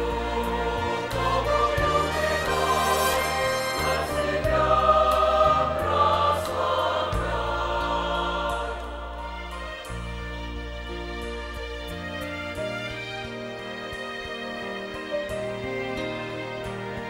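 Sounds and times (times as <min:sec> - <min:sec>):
choir singing a hymn: 0:00.0 - 0:10.1
low sustained accompaniment: 0:00.0 - 0:17.0.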